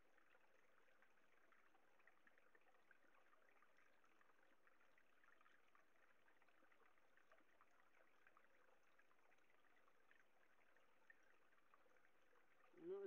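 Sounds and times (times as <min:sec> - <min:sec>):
faint trickle of running water: 0:00.0 - 0:13.0.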